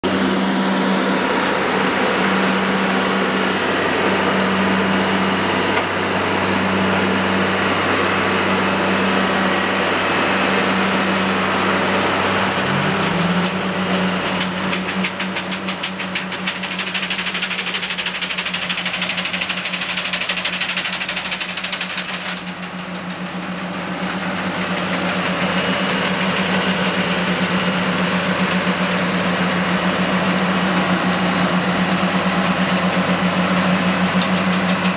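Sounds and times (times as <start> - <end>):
harvester engine running: 0.0 - 34.9
rapid regular clatter: 12.5 - 23.0.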